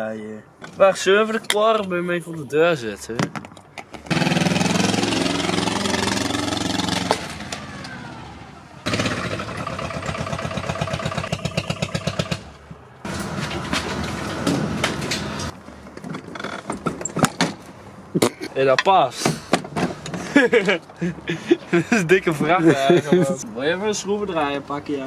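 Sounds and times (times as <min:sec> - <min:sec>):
small diesel engine chugging: 0:08.9 - 0:12.5.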